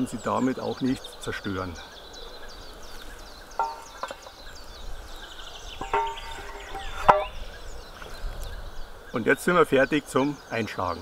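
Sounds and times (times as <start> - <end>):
birds chirping: 0.0 - 11.0
wooden block knocks with metallic ring: 3.6 - 4.2, 5.8 - 7.4.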